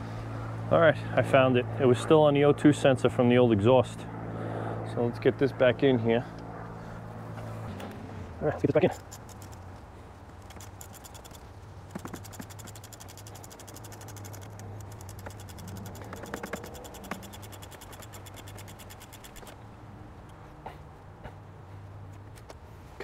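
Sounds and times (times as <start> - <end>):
metal parts scraping: 8.8 - 9.7, 10.4 - 19.6
metal parts clicking: 10.4 - 19.6.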